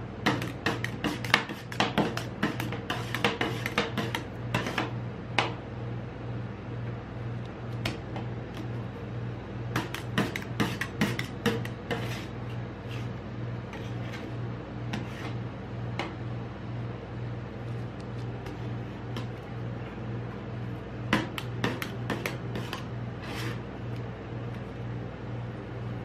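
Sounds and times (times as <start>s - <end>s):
steady low hum: 0.0s - 26.0s
metal spatulas tapping and scraping: 0.3s - 5.5s, 9.8s - 12.3s, 21.2s - 23.5s.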